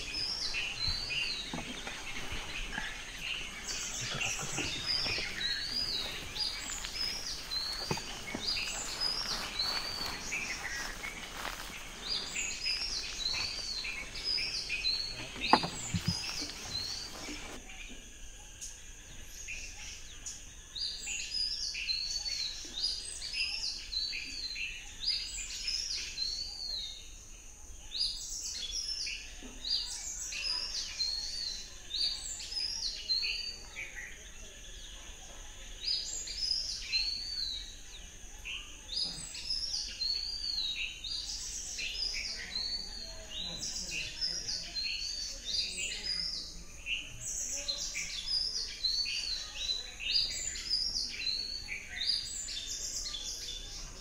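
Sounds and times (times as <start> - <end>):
birds chirping and whistling: 0.0 - 17.6.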